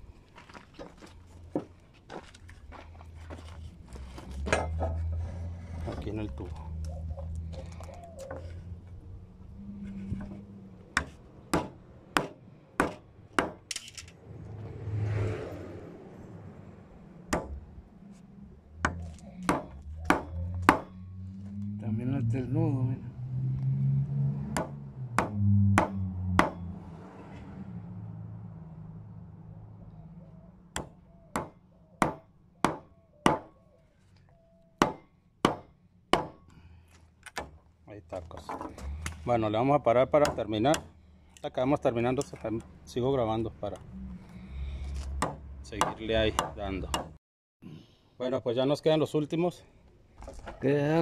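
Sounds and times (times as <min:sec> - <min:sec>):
hammer striking wood chisel: 0:11.0 - 0:13.6, 0:17.3 - 0:17.6, 0:18.8 - 0:20.9, 0:24.5 - 0:26.6, 0:30.8 - 0:33.5, 0:34.8 - 0:36.5, 0:40.2 - 0:40.9, 0:45.2 - 0:47.1.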